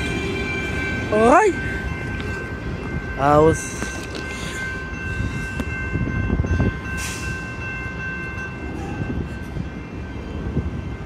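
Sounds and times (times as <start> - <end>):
heavy vehicles rumbling: 0.0 - 11.0.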